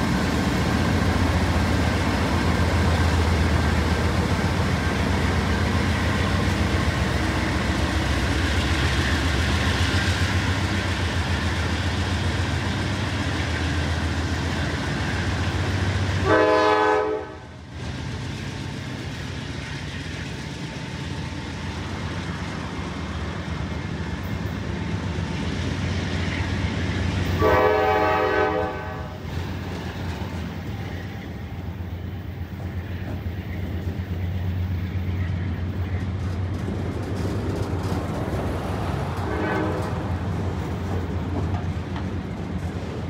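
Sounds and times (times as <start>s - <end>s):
freight train rumbling past: 0.0s - 43.0s
locomotive horn: 16.2s - 17.5s, 27.3s - 29.2s, 39.2s - 40.2s
wheels clattering on rail: 29.2s - 43.0s.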